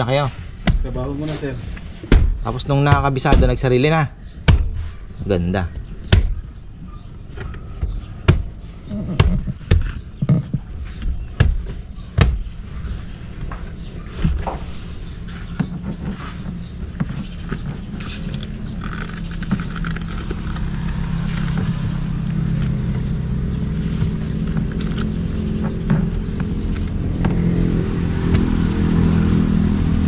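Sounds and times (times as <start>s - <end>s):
vehicle engine running: 11.6s - 30.0s
sharp knocks and clicks: 24.0s - 27.5s.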